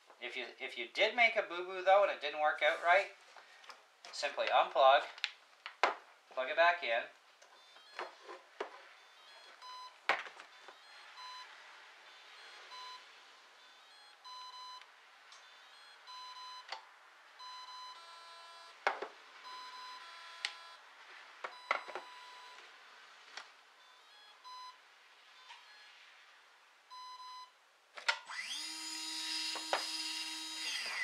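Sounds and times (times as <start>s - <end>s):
short electronic beeps: 7.6s - 16.7s, 17.4s - 18.8s, 19.4s - 20.9s, 21.5s - 22.6s, 23.8s - 26.0s, 26.9s - 27.6s
higher-pitched tones: 8.9s - 14.8s, 17.4s - 22.6s.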